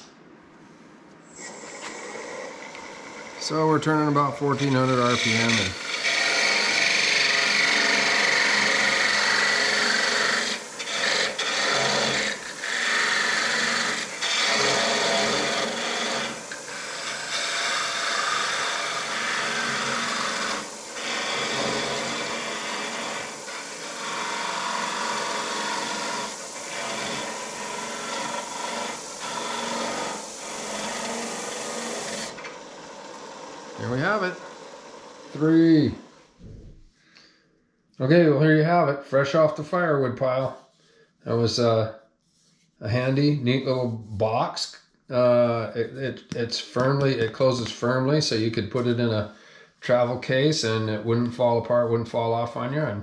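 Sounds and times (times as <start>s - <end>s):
lathe tool scraping wood: 1.3s - 36.3s.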